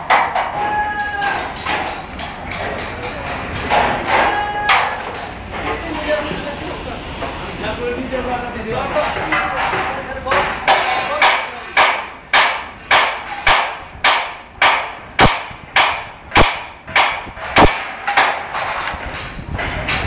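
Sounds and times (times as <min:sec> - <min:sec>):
hammer striking formwork: 0:00.0 - 0:05.3, 0:09.1 - 0:19.0.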